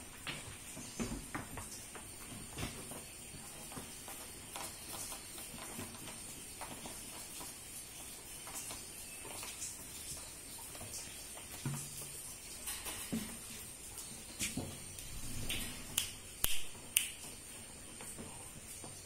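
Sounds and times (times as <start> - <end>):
faint steady hiss: 0.0 - 19.0
goat hooves on wooden floor: 0.0 - 19.0.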